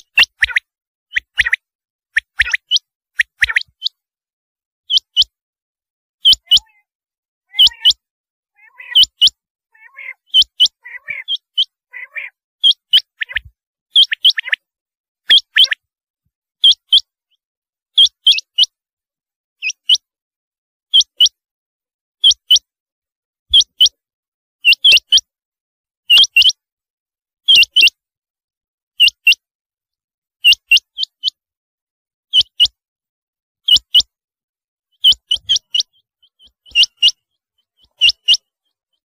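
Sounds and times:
quail calling: 0.0s - 1.6s, 6.2s - 6.9s, 7.5s - 14.6s, 15.3s - 15.8s, 35.0s - 38.5s
soft low chirping: 4.9s - 5.4s, 6.2s - 6.9s, 7.5s - 14.6s, 35.0s - 39.0s.

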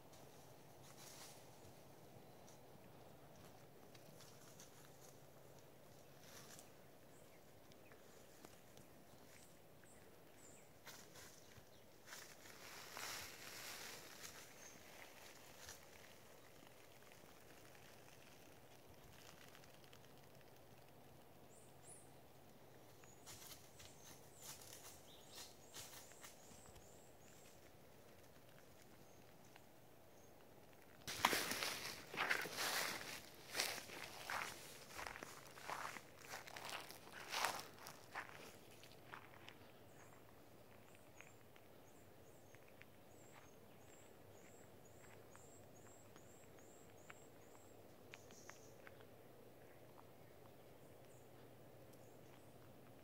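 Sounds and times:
twigs and leaves snapping underfoot: 10.8s - 21.8s, 30.7s - 40.2s
faint ticks: 16.5s - 23.6s.

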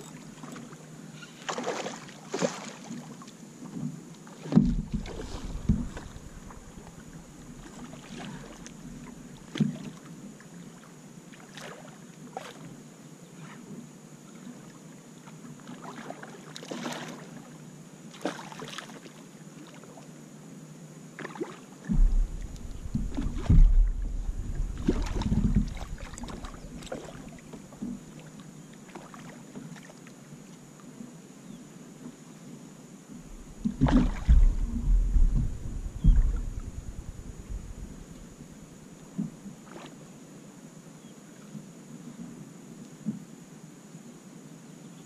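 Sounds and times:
water splashes: 0.4s - 3.3s, 4.2s - 10.1s, 11.3s - 12.6s, 15.6s - 17.4s, 18.1s - 19.9s, 21.2s - 28.3s, 28.9s - 29.9s, 33.2s - 38.8s
low thumps: 4.6s - 7.7s, 21.9s - 26.9s, 33.2s - 38.6s
low rumbling: 4.7s - 7.8s, 21.9s - 27.4s, 33.2s - 38.8s.

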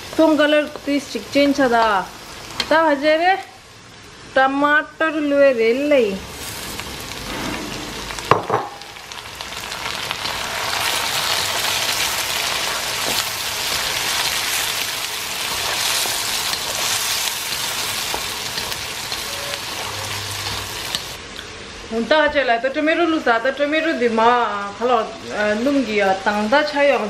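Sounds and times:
tomatoes sizzling in hot oil: 0.0s - 21.6s, 22.7s - 27.0s
wooden spatula scraping wok: 6.3s - 8.3s.

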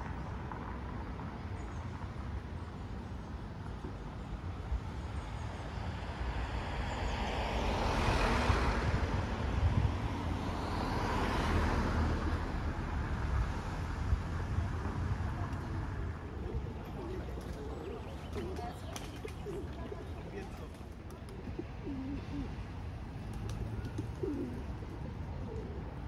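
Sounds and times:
street traffic rumble: 0.0s - 26.0s
vehicle passing close by: 6.6s - 18.0s.

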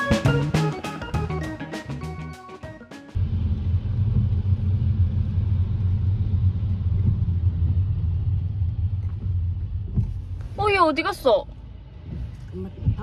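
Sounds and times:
music: 0.0s - 3.2s
road and engine rumble in car: 3.2s - 13.0s.

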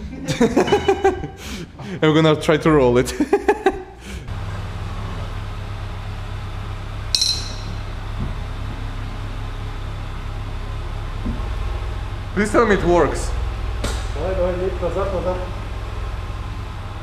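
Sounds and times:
steady low hum: 3.1s - 17.0s
metal pipe clinking on metal: 7.1s - 7.9s.

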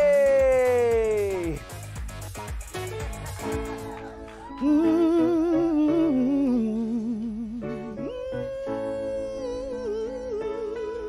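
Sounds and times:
soft instrumental backing: 0.0s - 11.0s
wordless soul vocal: 4.5s - 11.0s.

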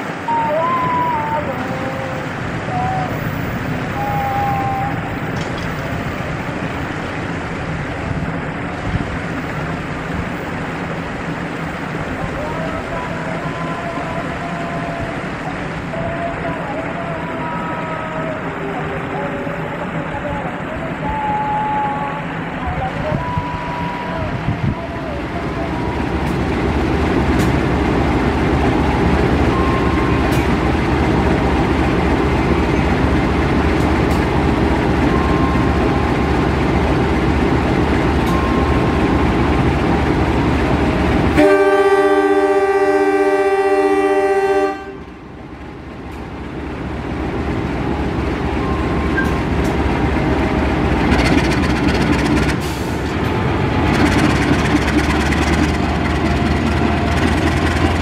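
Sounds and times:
locomotive engine rumbling: 0.0s - 58.0s
locomotive horn: 3.9s - 5.1s, 41.2s - 45.3s.

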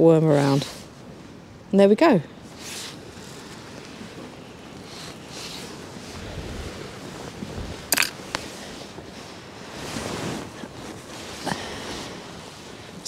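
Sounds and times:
wind: 0.0s - 13.0s
fishing tackle clicks: 7.9s - 8.2s.

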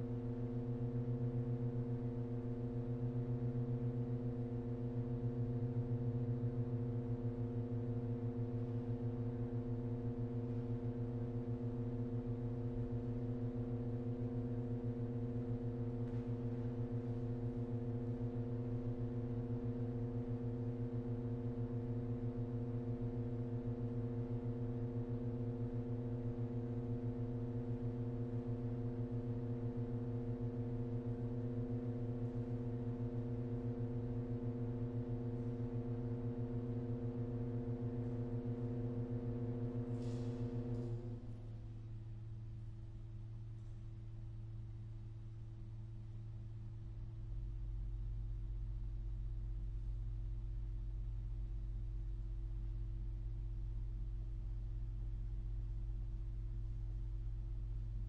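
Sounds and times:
pipe organ sustained chord: 0.0s - 41.7s.

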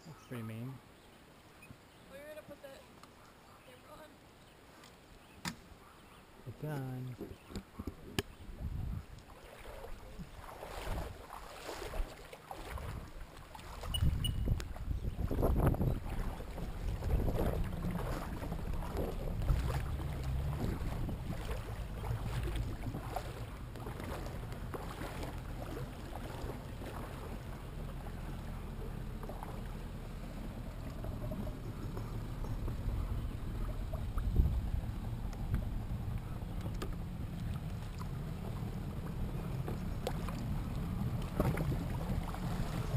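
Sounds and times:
steady low rumble: 14.0s - 42.9s.

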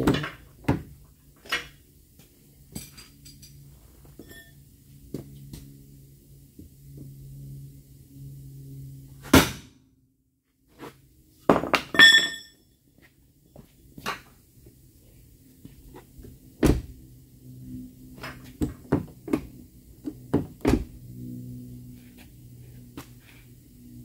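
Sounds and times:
hammer striking iron bar: 11.9s - 12.5s.

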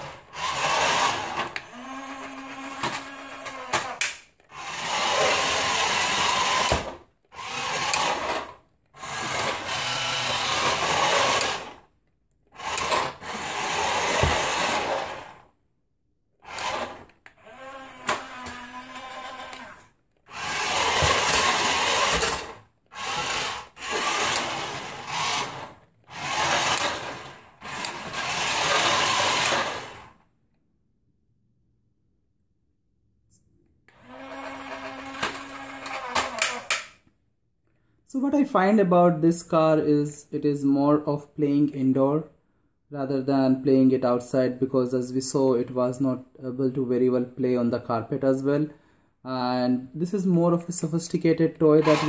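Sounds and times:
toy car motors whirring: 0.0s - 15.5s, 16.4s - 30.2s, 33.9s - 37.0s, 51.7s - 52.0s.

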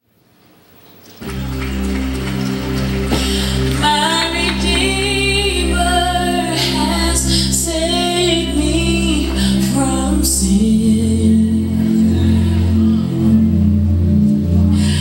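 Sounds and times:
sustained backing chords: 1.2s - 15.0s
woman singing: 3.8s - 12.4s.

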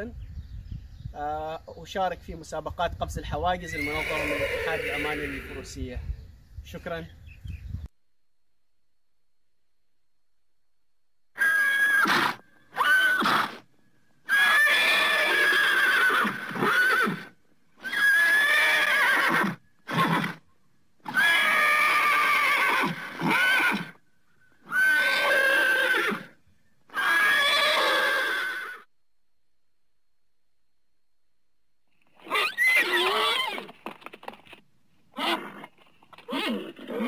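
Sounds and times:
horse neighing: 3.7s - 5.8s, 11.4s - 13.6s, 14.3s - 20.4s, 21.0s - 24.0s, 24.6s - 28.9s, 32.2s - 33.8s, 35.2s - 37.0s.

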